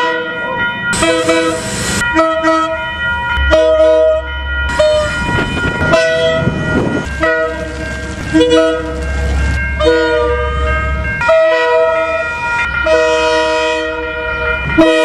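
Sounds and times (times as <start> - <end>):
locomotive air horn toots: 1.0 - 2.8, 5.8 - 9.1, 9.8 - 15.0
locomotive engine rumble: 4.7 - 12.9.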